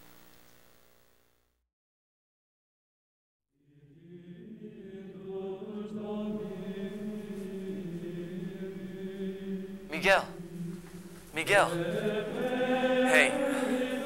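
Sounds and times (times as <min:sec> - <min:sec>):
men chanting: 0:03.6 - 0:14.0.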